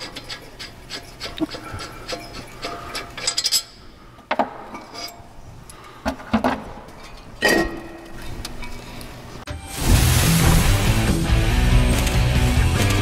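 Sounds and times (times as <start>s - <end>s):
metal clinks and knocks: 0.0s - 5.3s.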